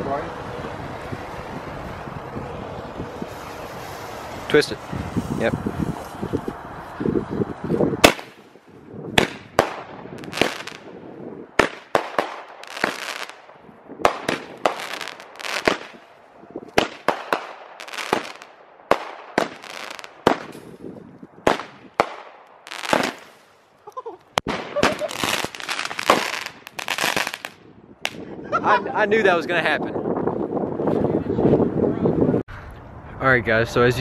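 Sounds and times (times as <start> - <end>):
firework pops with hiss: 8.0 - 8.5, 9.2 - 10.9, 11.6 - 13.4, 14.0 - 16.0, 16.8 - 23.5, 24.4 - 28.2.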